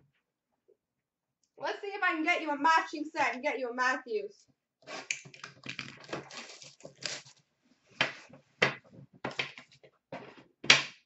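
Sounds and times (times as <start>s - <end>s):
cards and packaging rustling: 5.2s - 7.4s.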